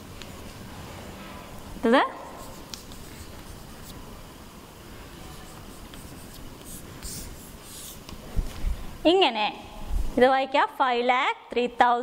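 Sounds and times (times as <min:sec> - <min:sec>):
chalk scratching on blackboard: 0:02.3 - 0:04.1, 0:05.2 - 0:08.2.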